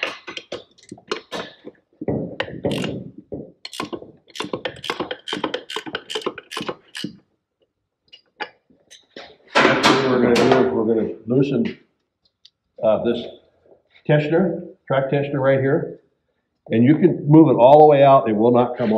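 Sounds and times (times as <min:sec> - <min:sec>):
wrench clicking on metal nut: 0:02.7 - 0:02.9, 0:03.7 - 0:07.1.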